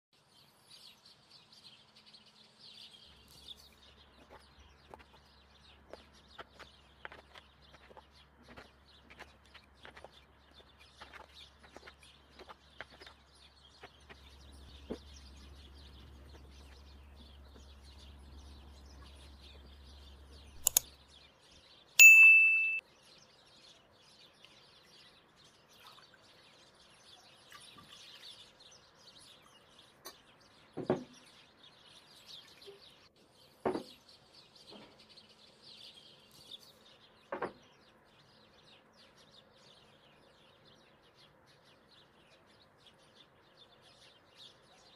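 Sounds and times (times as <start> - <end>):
faint bird chirping: 0.2 - 44.9
bright ding: 22.0 - 22.8.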